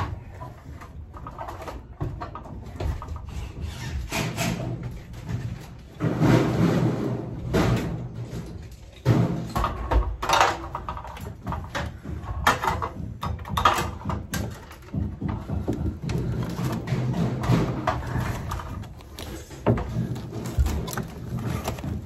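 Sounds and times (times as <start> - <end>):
knocks and bumps: 0.0 - 22.0
rustling of material: 13.6 - 22.0.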